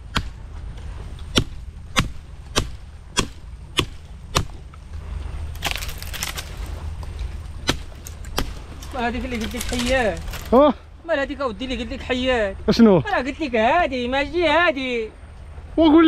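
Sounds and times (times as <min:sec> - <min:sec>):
crackling rustle: 0:00.0 - 0:10.9
chopping blows on wood: 0:01.3 - 0:04.6.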